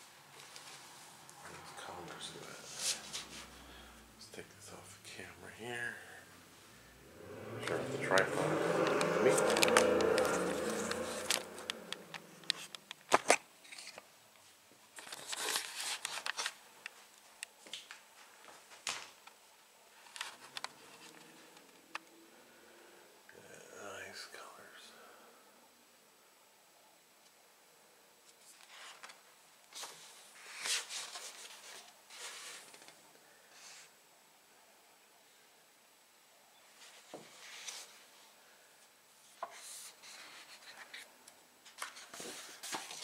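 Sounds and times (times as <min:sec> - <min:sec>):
book pages rustling and sliding: 0:00.3 - 0:01.2, 0:08.0 - 0:17.2, 0:28.3 - 0:33.0, 0:36.8 - 0:38.1, 0:39.4 - 0:43.0
rustling: 0:28.2 - 0:33.0.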